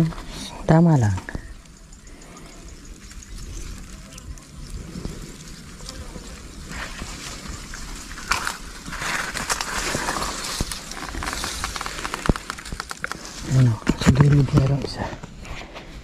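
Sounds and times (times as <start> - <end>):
undergrowth and reeds rustling: 0.0 - 16.0
stems snapping: 8.1 - 14.7.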